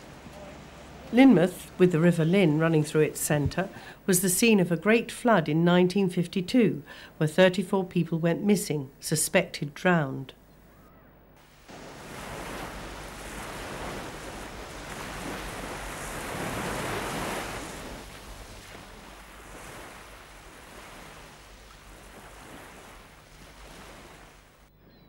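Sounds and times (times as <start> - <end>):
waves breaking on rocky shore: 11.4 - 24.6.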